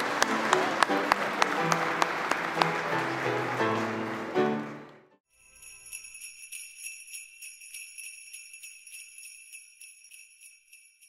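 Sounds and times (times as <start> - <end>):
sleigh bells jingling: 5.3 - 11.0.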